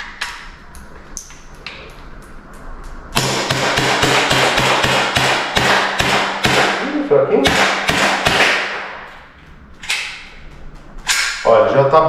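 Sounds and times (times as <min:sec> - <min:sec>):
bb pistol shots: 0:03.2 - 0:06.8, 0:07.4 - 0:09.0.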